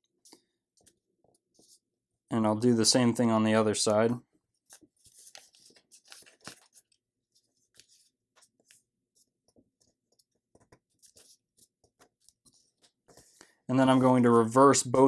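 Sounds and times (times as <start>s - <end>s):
paper rustling and crackling: 4.5s - 13.5s.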